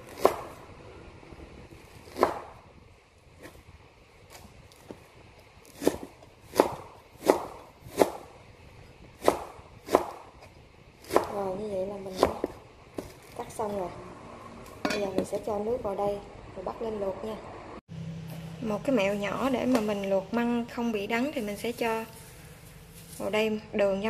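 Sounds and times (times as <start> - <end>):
knife chopping on cutting board: 0.1 - 0.5, 2.0 - 2.5, 5.7 - 8.3, 9.2 - 11.5.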